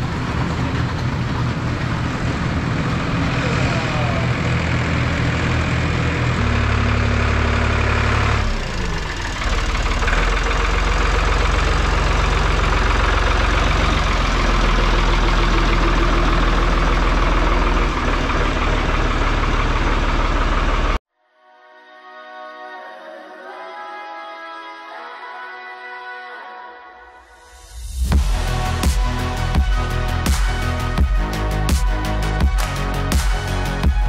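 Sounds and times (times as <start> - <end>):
backhoe loader engine running: 0.0 - 21.0.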